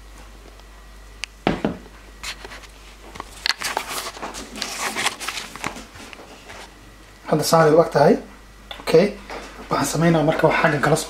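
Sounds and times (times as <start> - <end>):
scraping and rustling: 2.2 - 6.7.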